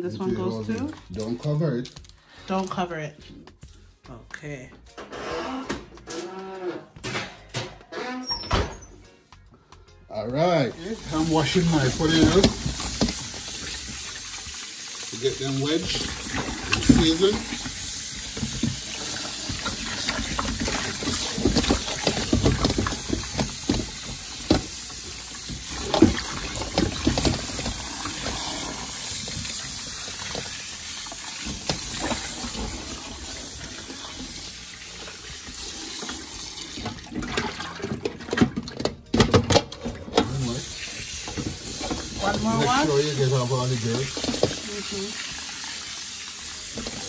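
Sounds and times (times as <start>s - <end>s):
tap water running into bowl: 10.8s - 47.0s.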